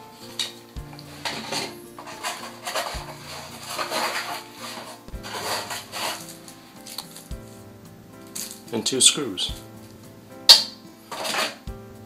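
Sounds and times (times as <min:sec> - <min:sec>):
quiet background music: 0:00.0 - 0:12.0
packaging clattering and rustling: 0:00.2 - 0:07.3.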